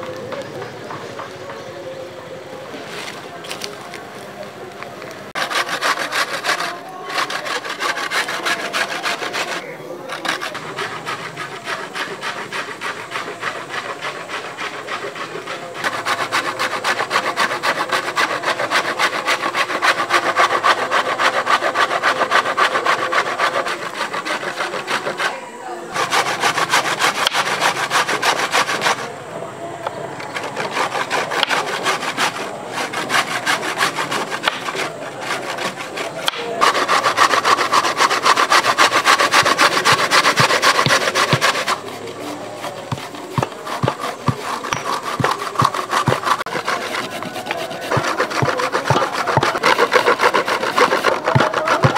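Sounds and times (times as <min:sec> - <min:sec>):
carrot grated on metal grater: 0:30.2 - 0:51.9.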